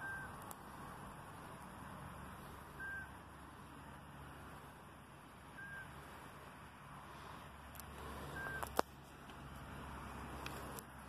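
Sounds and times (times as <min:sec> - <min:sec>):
whistled bird notes: 0:00.0 - 0:00.4, 0:02.7 - 0:03.2, 0:05.5 - 0:06.0, 0:08.3 - 0:08.7
faint background hiss: 0:00.0 - 0:11.0.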